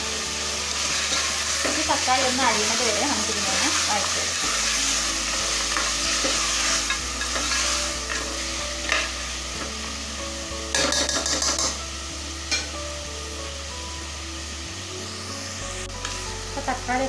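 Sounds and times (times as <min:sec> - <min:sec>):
food sizzling in hot oil: 0:00.0 - 0:17.0
spoon scraping and knocking pot: 0:10.8 - 0:11.8.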